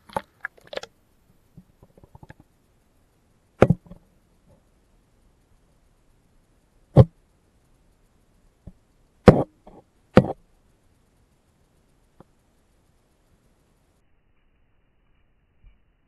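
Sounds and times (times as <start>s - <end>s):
sharp knocks and taps underwater: 3.6s - 4.0s.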